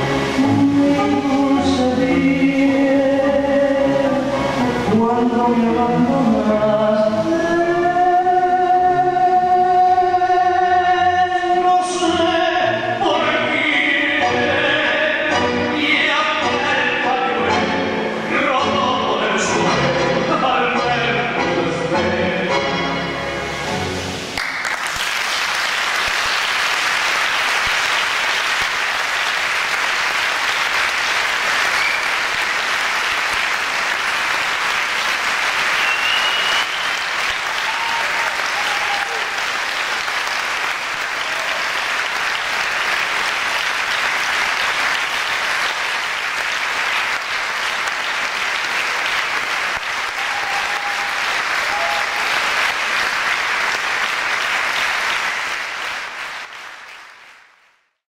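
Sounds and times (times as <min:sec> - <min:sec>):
crowd applauding: 0:24.3 - 0:58.0.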